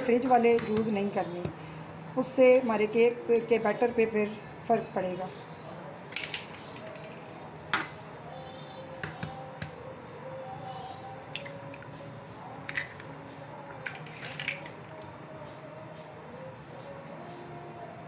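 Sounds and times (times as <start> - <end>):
eggshells cracking on bowl rim: 11.3 - 11.9, 12.6 - 14.8.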